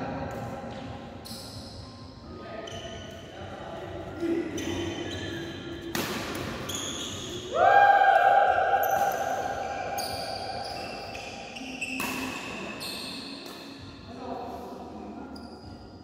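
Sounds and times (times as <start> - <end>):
shoes squeaking on court: 2.6 - 3.4, 4.1 - 7.5, 10.0 - 14.0
rackets hitting shuttlecock: 5.8 - 7.0, 11.8 - 14.0.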